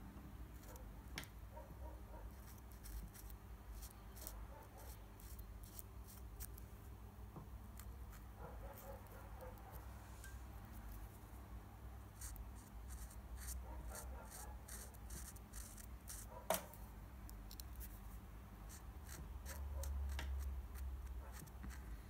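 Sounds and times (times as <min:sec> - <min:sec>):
marker scratching on paper: 0:02.3 - 0:06.5, 0:12.2 - 0:16.3, 0:18.7 - 0:21.9.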